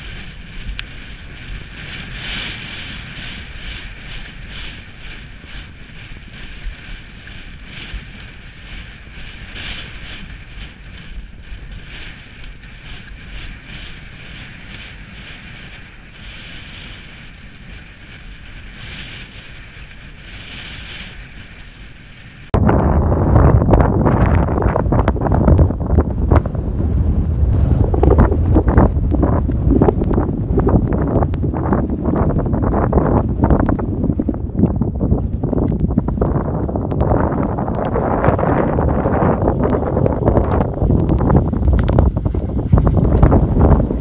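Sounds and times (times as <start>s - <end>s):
horse galloping: 0.0s - 44.0s
wind rushing over microphone: 0.0s - 44.0s.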